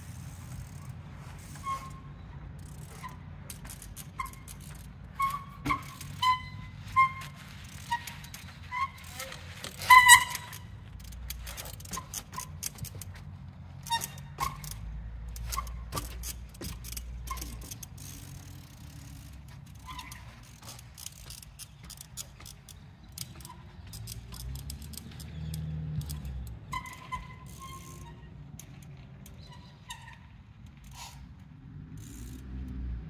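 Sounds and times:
bicycle mechanism clicking: 0.0s - 32.9s
short high squeaks: 0.4s - 13.2s, 13.8s - 31.3s
bicycle tyres landing on steps: 15.4s - 17.8s.

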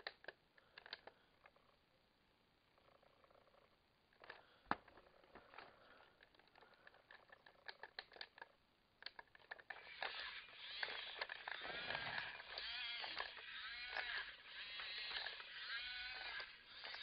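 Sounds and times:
toy tractor motor whining: 9.5s - 17.0s.

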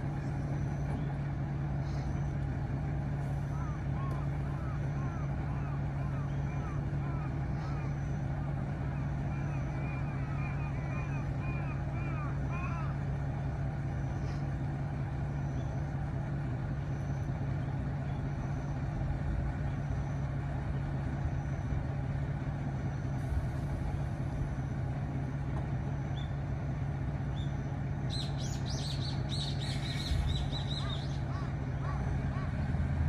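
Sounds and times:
diesel railcar idling: 0.0s - 33.0s
bird chirping: 27.3s - 32.4s.

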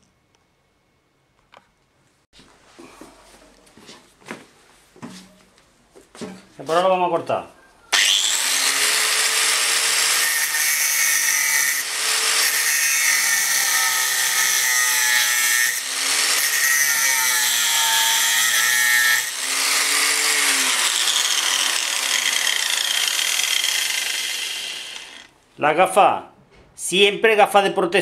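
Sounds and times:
angle grinder cutting metal: 7.9s - 25.4s.

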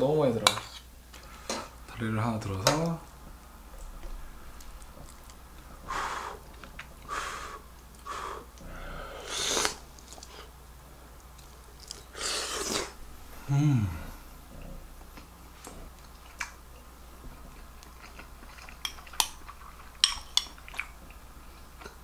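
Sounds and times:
person breathing: 5.8s - 6.4s, 7.1s - 9.6s, 13.3s - 14.3s
person slurping food: 9.0s - 10.5s, 12.1s - 13.0s
person humming mm: 12.2s - 14.2s.

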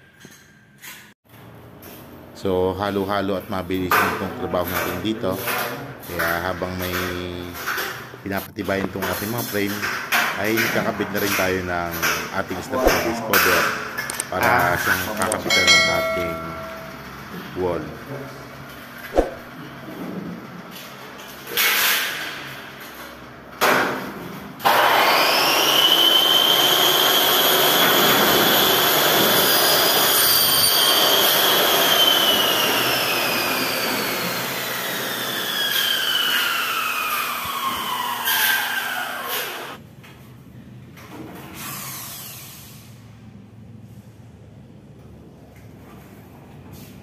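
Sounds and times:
power tool motor whine: 24.7s - 39.8s.

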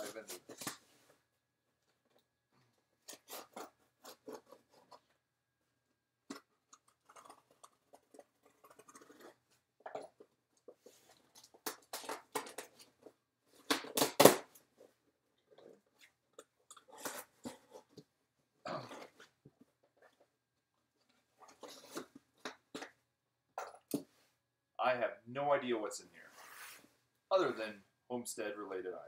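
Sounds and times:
knife slitting packing tape: 3.1s - 4.9s.

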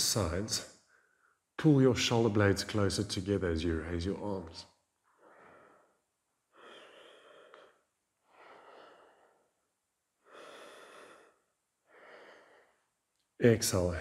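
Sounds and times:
man breathing deeply: 5.1s - 13.0s.

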